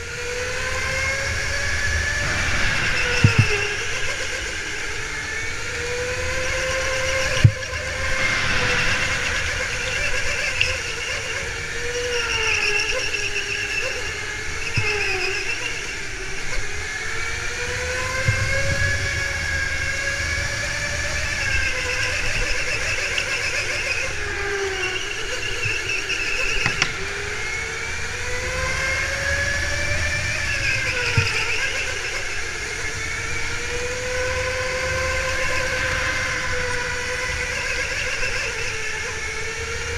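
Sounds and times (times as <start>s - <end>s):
electric motor whining: 0.0s - 39.9s
sharp knocks: 2.2s - 4.4s, 26.6s - 27.1s.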